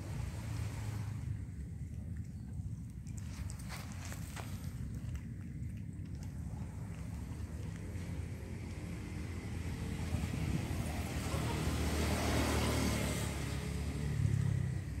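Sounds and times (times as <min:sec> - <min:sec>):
engine passing by: 0:00.0 - 0:01.8, 0:06.2 - 0:15.0.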